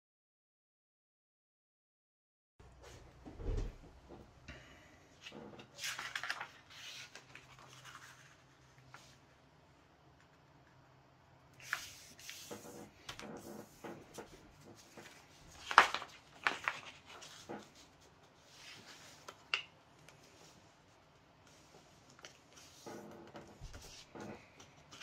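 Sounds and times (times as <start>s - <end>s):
paper rustling and crackling: 5.2s - 9.2s, 11.6s - 20.6s, 21.5s - 25.0s.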